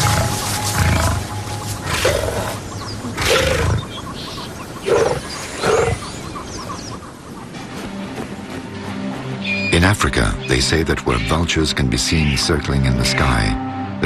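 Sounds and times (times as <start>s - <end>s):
big cat snarling: 1.8s - 3.9s.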